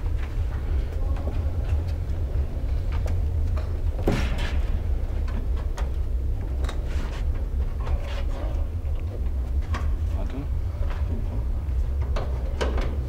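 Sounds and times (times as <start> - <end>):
low rumble: 0.0 - 13.0
knocks and scrapes: 6.6 - 8.7.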